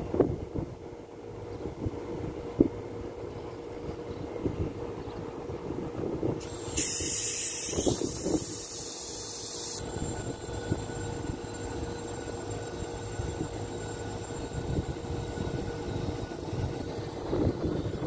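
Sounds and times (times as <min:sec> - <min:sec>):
air conditioner unit humming: 0:00.0 - 0:18.0
loud gas hiss: 0:06.4 - 0:09.8.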